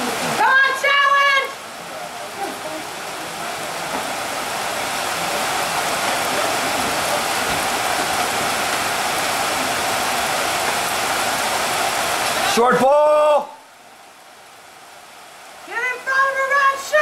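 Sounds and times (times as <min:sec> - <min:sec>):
steady rain falling: 0:00.0 - 0:17.0.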